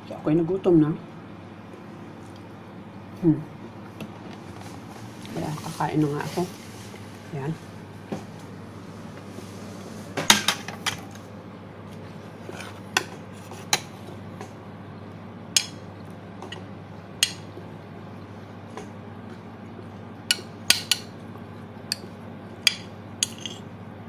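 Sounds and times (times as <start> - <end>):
metal spoon scraping a plate: 12.4 - 13.8, 23.2 - 23.7.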